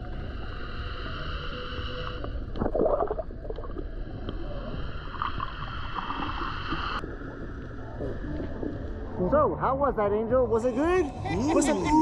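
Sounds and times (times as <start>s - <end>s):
muffled underwater rumble: 0.0s - 9.7s
gurgling bubbles: 2.4s - 8.8s.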